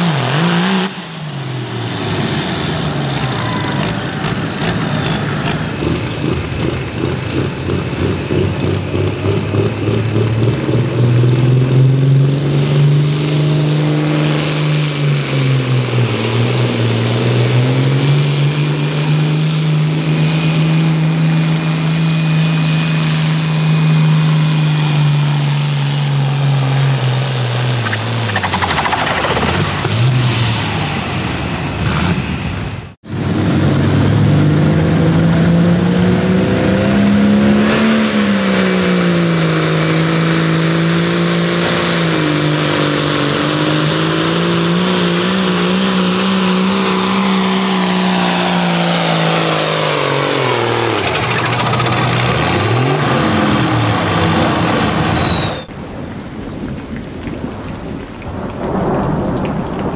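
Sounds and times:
tractor diesel engine at full throttle: 0.0 - 32.2, 33.3 - 55.7
high turbo whistle: 48.2 - 55.7.

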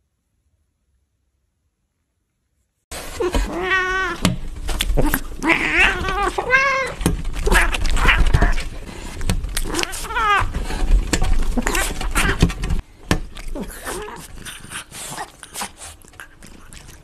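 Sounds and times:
cats meowing: 3.1 - 8.8, 9.5 - 10.6, 11.3 - 12.8.

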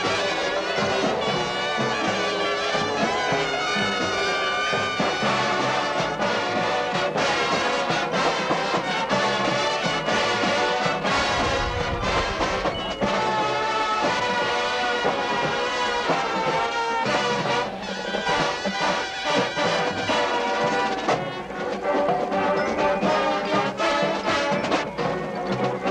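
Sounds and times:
brass bugles holding chords: 0.0 - 25.2
drum line hits: 5.0 - 22.4.

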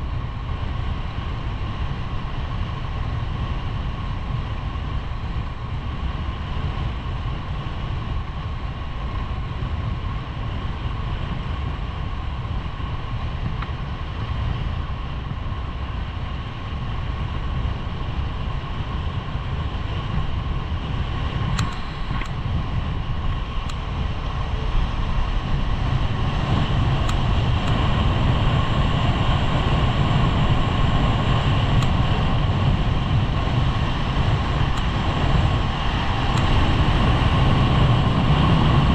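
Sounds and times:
wind rushing over microphone: 0.0 - 38.9
sharp clicks: 21.5 - 22.4.

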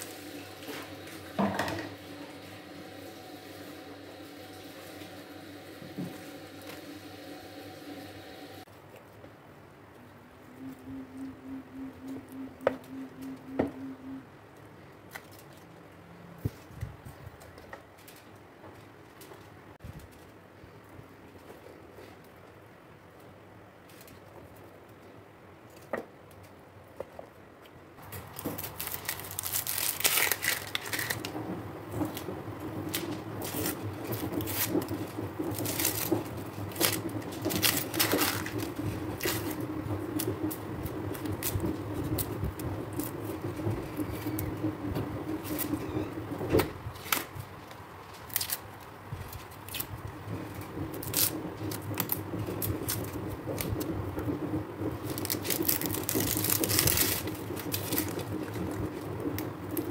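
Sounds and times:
low steady hum: 0.0 - 25.8
onion skins crackling and tearing: 27.6 - 46.2, 46.9 - 54.3, 54.9 - 59.9.

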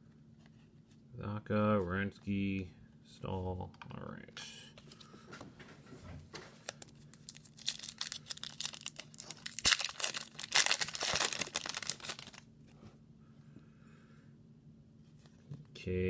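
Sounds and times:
foil wrapper tearing and crinkling: 6.6 - 12.4.

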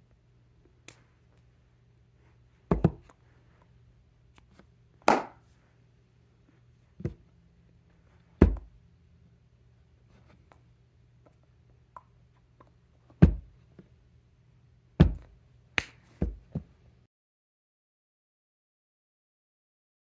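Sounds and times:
faint low hum: 0.0 - 17.1
hands slapping: 0.8 - 1.1, 4.3 - 5.5, 15.0 - 16.7.

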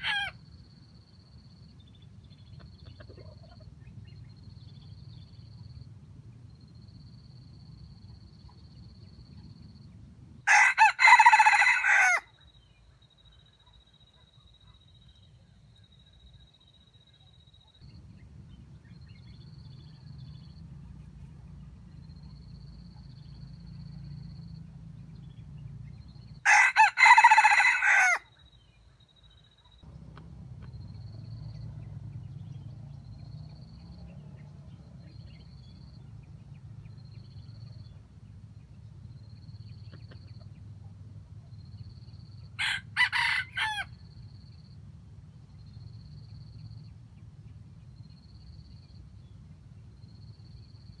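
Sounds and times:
rooster crowing: 0.0 - 0.4, 10.4 - 12.3, 26.4 - 28.3, 42.6 - 44.0
faint low hum: 0.0 - 27.6, 28.3 - 43.2.

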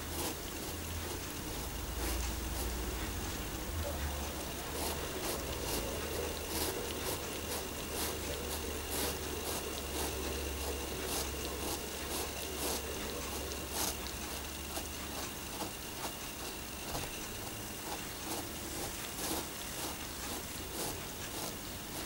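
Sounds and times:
cat licking fabric: 0.0 - 22.0
steady low hum: 0.0 - 22.0.

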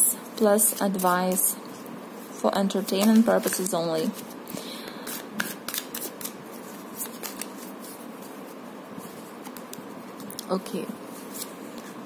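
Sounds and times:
cards being shuffled: 0.6 - 1.6, 2.7 - 12.0
crisp card snaps: 5.0 - 6.4.

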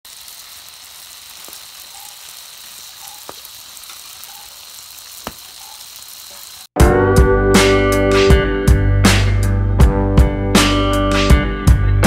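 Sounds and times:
frying in hot oil sizzle: 0.0 - 6.8
sharp oil pops: 5.2 - 5.5.

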